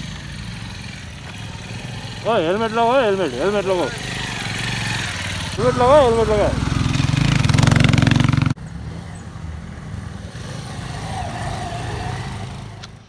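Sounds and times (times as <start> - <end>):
motorcycle engine running loudly: 0.0 - 9.4
motorcycle riding past: 0.0 - 13.0.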